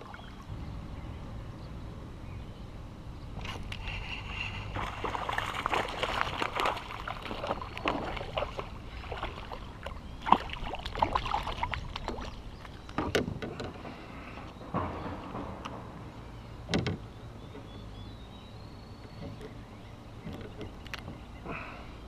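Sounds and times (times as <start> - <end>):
fish splashing in water: 3.7 - 12.8.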